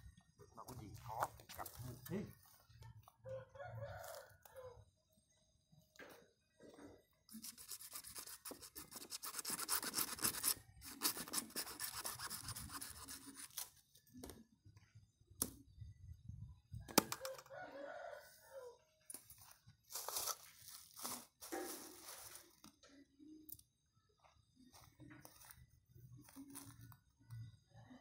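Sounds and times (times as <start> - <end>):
rooster crowing: 3.2 - 4.8, 17.2 - 18.8
dry scratchy scraping: 7.3 - 13.7.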